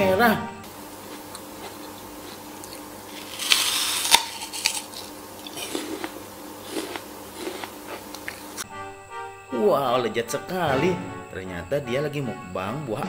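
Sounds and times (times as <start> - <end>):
chewing apple: 0.9 - 8.6
apple crunch and snap: 1.1 - 8.6.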